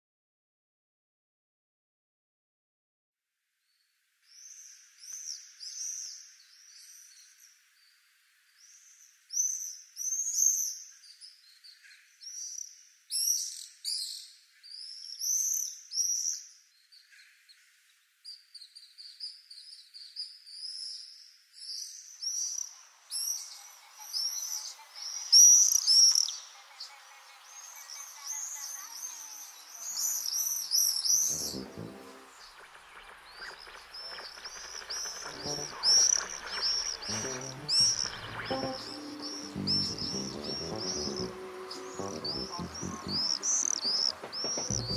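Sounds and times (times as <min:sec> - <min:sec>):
faint background noise: 0:03.2 - 0:44.9
swifts screaming: 0:27.6 - 0:44.8.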